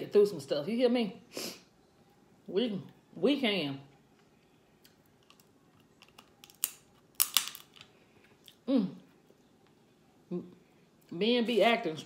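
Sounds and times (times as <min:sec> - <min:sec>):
crab shell cracking: 0:04.9 - 0:07.9.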